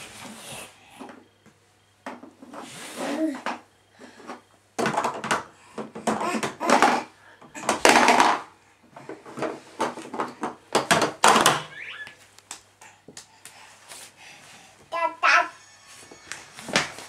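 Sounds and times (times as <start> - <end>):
plastic toy knocking and rattling: 4.8 - 11.7.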